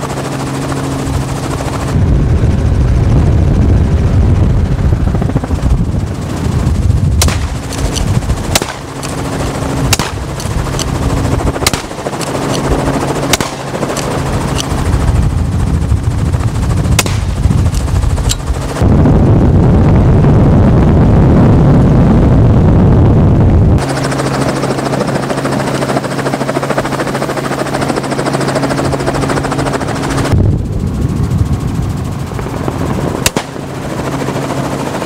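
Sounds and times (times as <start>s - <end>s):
helicopter rotor running: 0.0s - 35.0s
wind noise: 0.0s - 35.0s
net gun shots: 7.2s - 9.2s, 9.9s - 10.5s, 11.6s - 12.7s, 13.3s - 14.1s, 17.0s - 17.4s, 33.2s - 33.6s.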